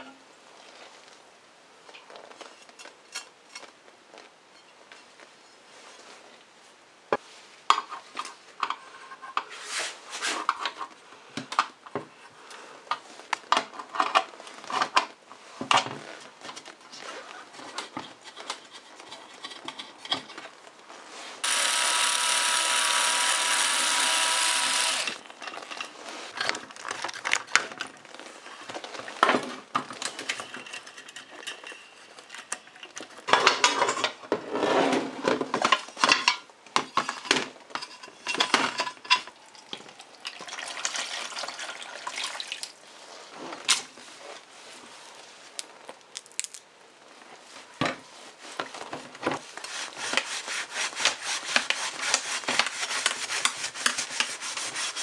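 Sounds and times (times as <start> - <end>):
cordless drill-driver whirring: 21.4 - 25.2.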